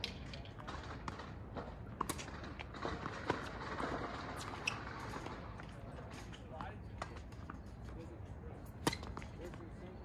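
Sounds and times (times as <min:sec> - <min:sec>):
rackets striking tennis ball: 0:00.0 - 0:05.5, 0:08.7 - 0:09.7.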